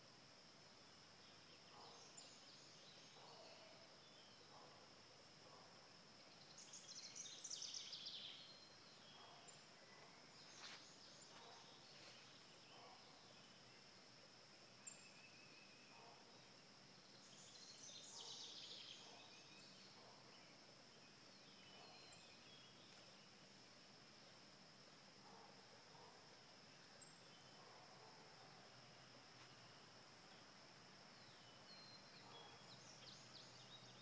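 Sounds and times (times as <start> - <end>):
distant bird chirping: 31.2 - 34.0.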